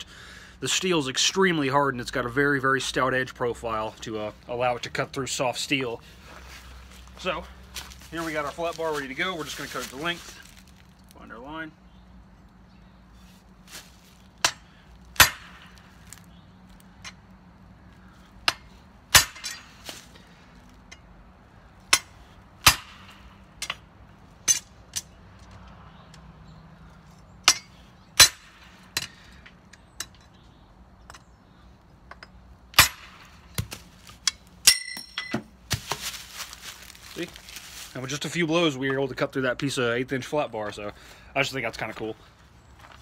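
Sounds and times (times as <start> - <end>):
metallic clink: 34.2 - 35.4.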